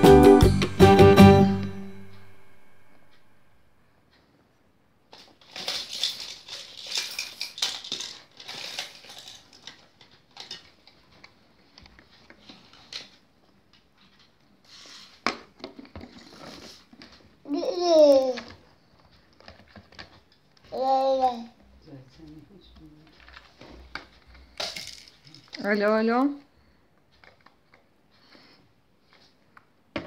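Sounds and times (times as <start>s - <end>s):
plastic toys clattering: 5.1s - 13.2s, 15.3s - 20.9s, 23.0s - 26.1s.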